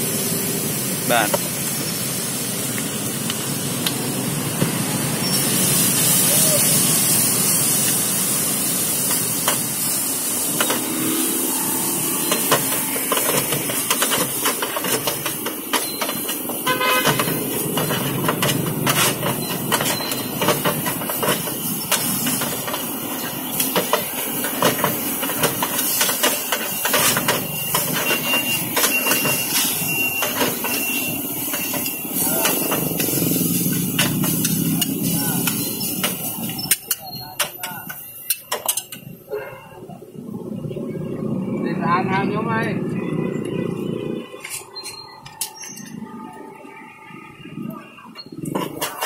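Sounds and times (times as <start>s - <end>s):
noodles sizzling on steel pan: 0.0s - 38.9s.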